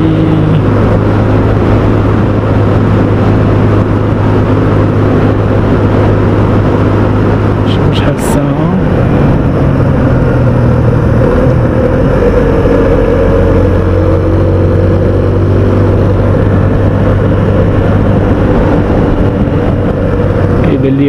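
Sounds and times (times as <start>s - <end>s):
motorcycle engine running: 0.0s - 21.0s.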